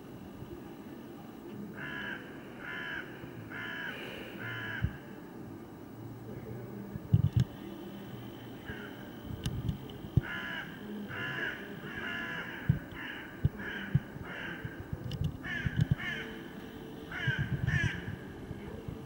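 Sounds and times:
crow cawing: 0:01.8 - 0:04.9, 0:10.2 - 0:14.7, 0:15.4 - 0:16.3, 0:17.1 - 0:18.1.

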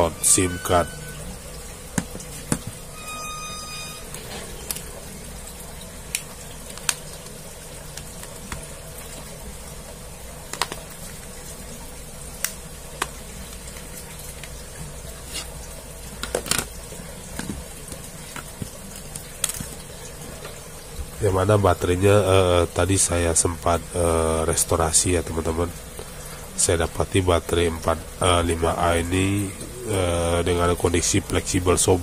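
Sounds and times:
faint brief tone: 0:00.0 - 0:01.4, 0:02.9 - 0:04.6.

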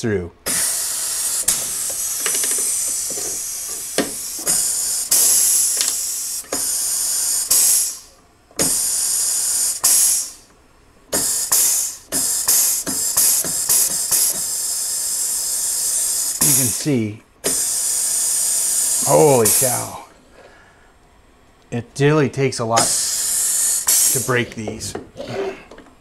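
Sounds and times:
air rivet gun hissing: 0:00.5 - 0:10.5, 0:11.1 - 0:16.8, 0:17.4 - 0:20.0, 0:22.8 - 0:24.7.

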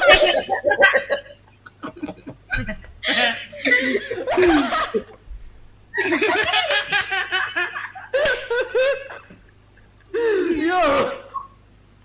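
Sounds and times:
person laughing: 0:00.0 - 0:05.2.

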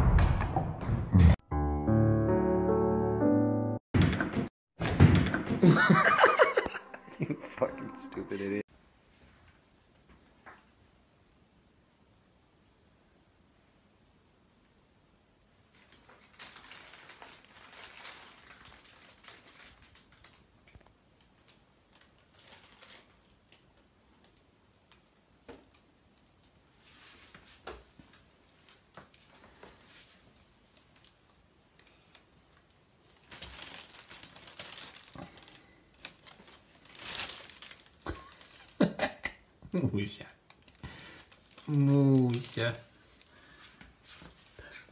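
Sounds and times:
plastic bag rustling and crinkling: 0:15.7 - 0:23.8, 0:32.5 - 0:38.9, 0:40.0 - 0:44.6.

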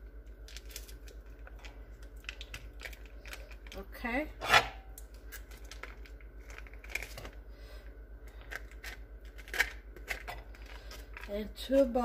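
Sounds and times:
foil wrapper crinkling: 0:00.2 - 0:04.1, 0:05.0 - 0:07.5, 0:08.3 - 0:12.0.

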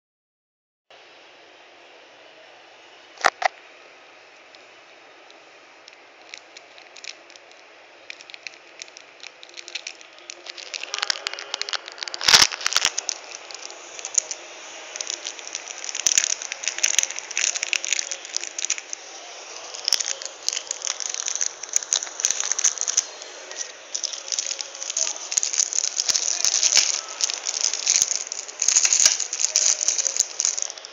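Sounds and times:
plastic bag crinkling: 0:05.8 - 0:30.9
chain bracelet rattling: 0:06.2 - 0:30.9.

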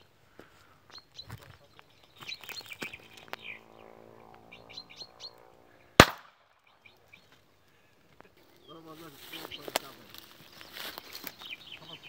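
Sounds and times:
small birds chirping: 0:00.0 - 0:06.0, 0:06.6 - 0:12.0
gunshot: 0:06.0 - 0:06.4.

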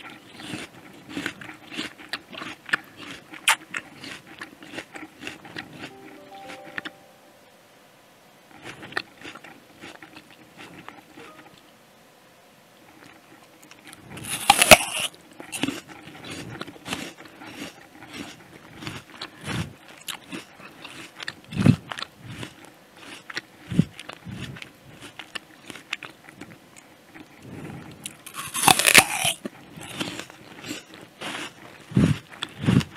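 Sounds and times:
apple crunching and chewing: 0:00.0 - 0:06.6, 0:08.5 - 0:11.6, 0:12.8 - 0:32.9.

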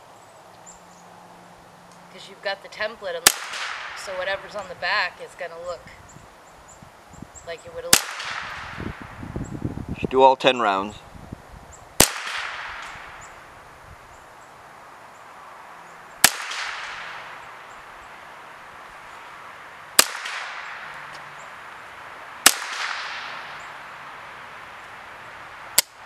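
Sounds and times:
rifle shots echoing: 0:03.2 - 0:04.4, 0:07.9 - 0:08.8, 0:12.0 - 0:13.4, 0:16.2 - 0:17.6, 0:20.0 - 0:20.9, 0:22.4 - 0:23.7.

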